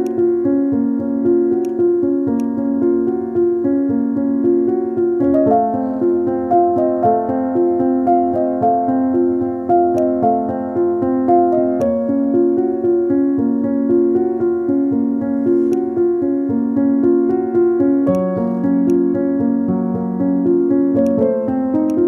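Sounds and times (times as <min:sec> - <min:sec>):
piano chords and melody: 0:00.0 - 0:22.0.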